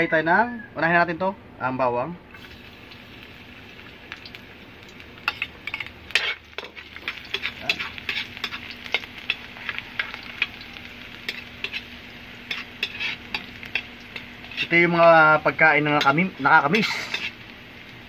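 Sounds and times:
garlic sizzling in hot oil: 0:02.3 - 0:18.0
metal spatula scraping wok: 0:05.3 - 0:10.6, 0:11.2 - 0:15.0, 0:15.9 - 0:17.4.

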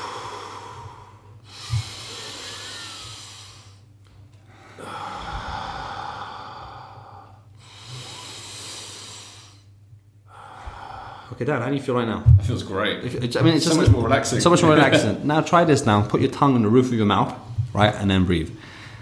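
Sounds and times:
man breathing deeply: 0:00.0 - 0:11.4, 0:18.6 - 0:19.0.

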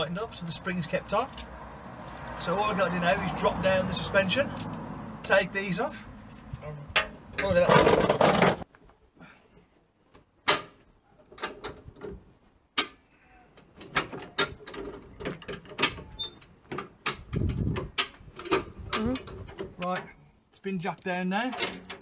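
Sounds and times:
jack latch clacking: 0:21.5 - 0:22.0.

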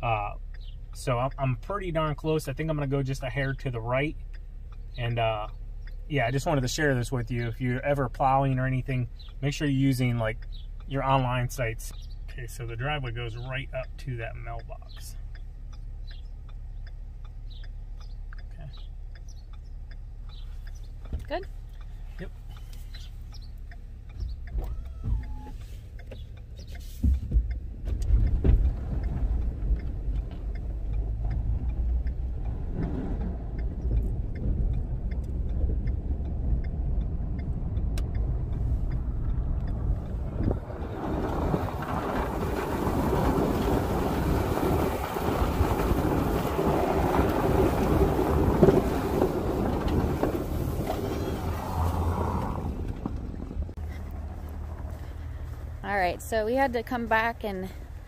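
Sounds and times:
truck engine and road rumble: 0:00.0 - 0:58.0
plow blade pushing snow: 0:28.2 - 0:57.6.

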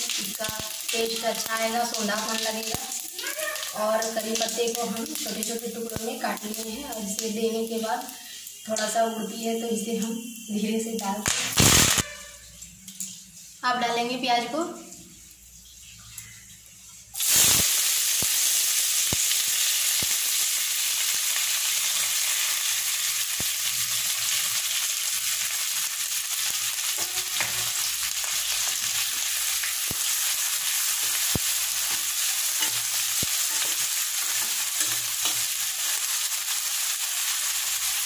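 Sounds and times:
onions sizzling in hot oil: 0:00.0 - 0:12.4, 0:17.1 - 0:38.0
spatula stirring: 0:30.0 - 0:36.2.

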